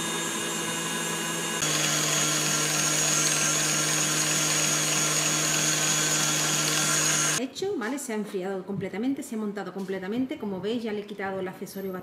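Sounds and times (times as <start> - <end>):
stand mixer whirring: 0.0 - 7.4.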